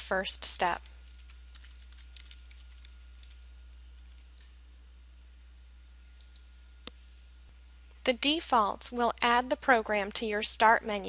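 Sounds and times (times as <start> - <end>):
low electrical hum: 0.0 - 11.0
keyboard typing clicks: 1.1 - 3.4.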